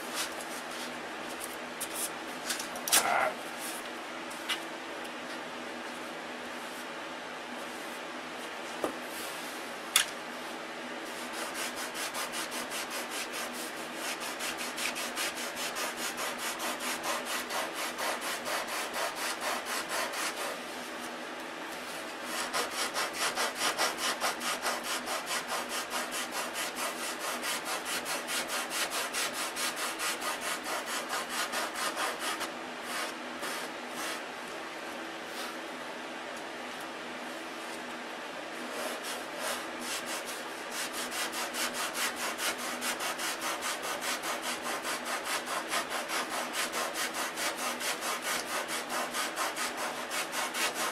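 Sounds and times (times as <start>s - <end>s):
sandpaper rubbing on wood: 11.1s - 20.6s, 22.2s - 34.2s, 38.7s - 50.9s.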